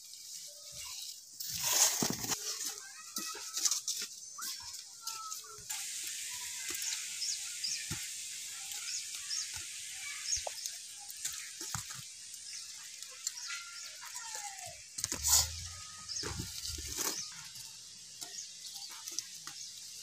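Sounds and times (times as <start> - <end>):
small birds chirping: 0.0 - 20.0
steady high hiss: 4.0 - 20.0.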